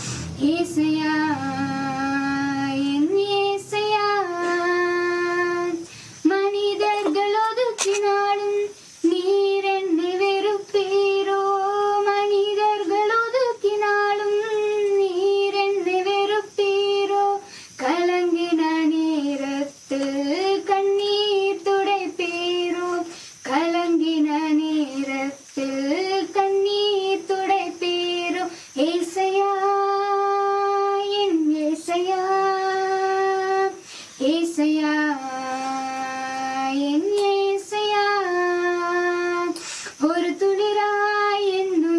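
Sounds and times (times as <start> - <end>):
singer breathing: 0.0 - 0.4, 5.8 - 6.3, 17.4 - 17.8, 23.1 - 23.4, 28.5 - 28.8, 33.8 - 34.2, 39.6 - 40.0
woman singing unaccompanied: 0.0 - 41.9.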